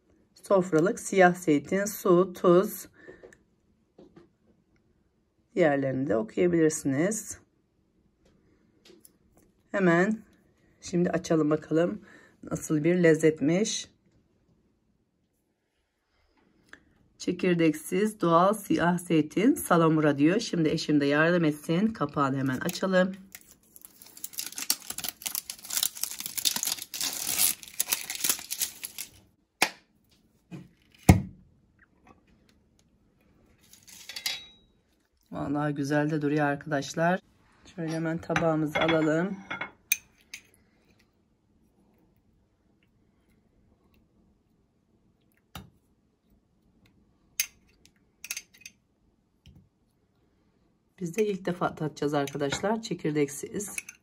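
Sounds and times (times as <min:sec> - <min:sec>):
plastic seal tearing: 0:23.3 - 0:29.2.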